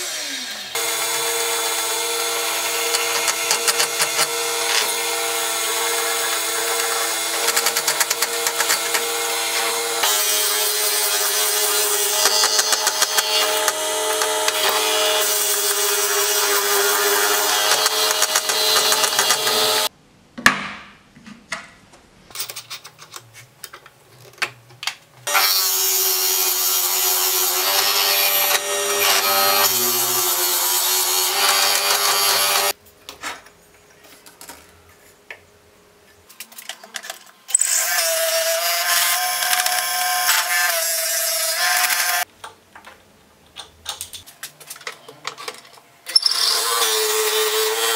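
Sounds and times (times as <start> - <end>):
lathe drill boring into wood: 0.0 - 19.9, 25.3 - 32.7, 46.1 - 47.9.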